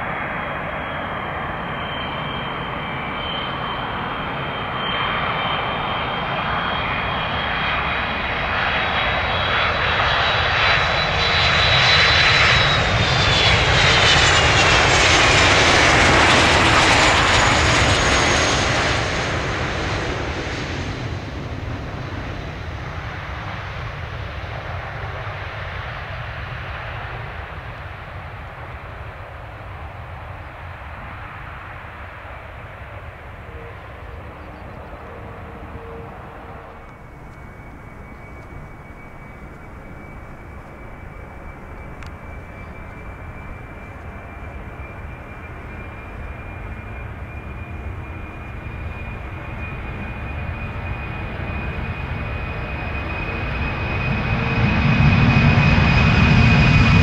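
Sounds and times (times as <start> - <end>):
jet airliner passing: 0.0 - 57.0
high engine whine: 26.7 - 57.0.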